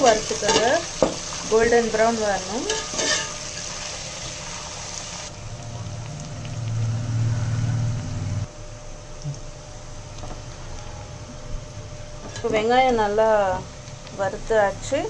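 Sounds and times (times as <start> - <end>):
onions sizzling in oil: 0.0 - 11.0, 11.7 - 15.0
low hum: 5.3 - 12.4.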